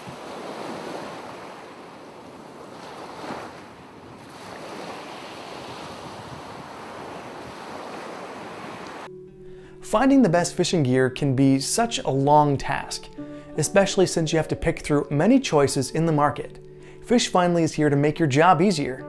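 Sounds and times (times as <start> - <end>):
ocean waves washing: 0.0 - 14.4.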